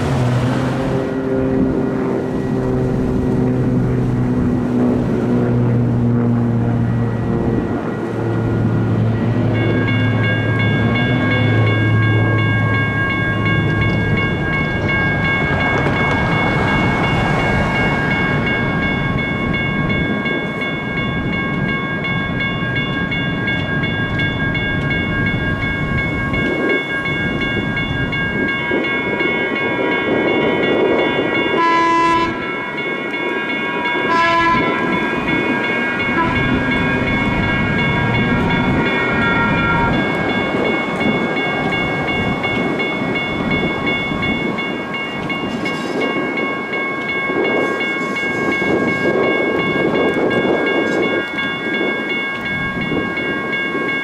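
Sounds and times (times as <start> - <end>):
railroad crossing bells ringing: 0.0 - 54.0
train rumbling on tracks: 0.0 - 54.0
train horn toots: 31.5 - 32.6, 34.0 - 40.5.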